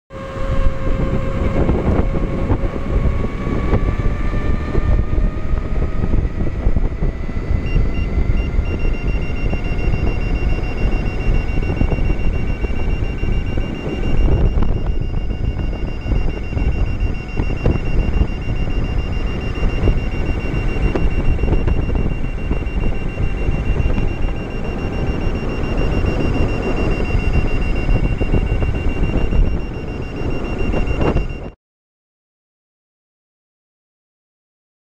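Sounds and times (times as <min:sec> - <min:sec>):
hub motor whine: 0:00.1 - 0:31.6
wind rushing over microphone: 0:00.1 - 0:31.6
high-pitched alarm beeps: 0:00.2 - 0:31.6.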